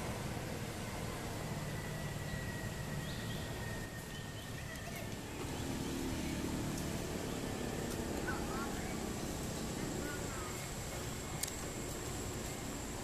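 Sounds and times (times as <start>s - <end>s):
faint high chirps: 1.2s - 6.6s.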